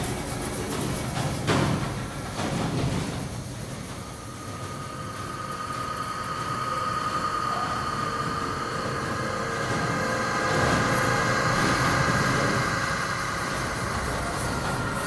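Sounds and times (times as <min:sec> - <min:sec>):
machine-like noise texture: 0:00.0 - 0:15.0
held high tone: 0:04.2 - 0:15.0.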